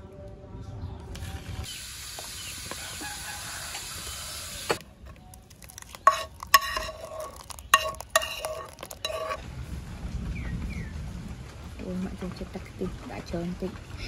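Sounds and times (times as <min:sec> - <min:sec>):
metal spoon clinking on pot: 0:05.6 - 0:09.4.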